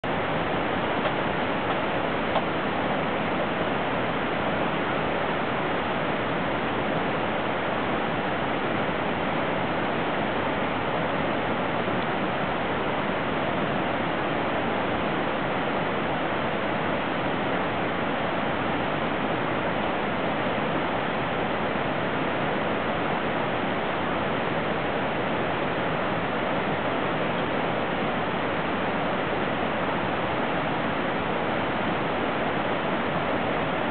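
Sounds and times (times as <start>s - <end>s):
water rushing: 0.0s - 33.9s.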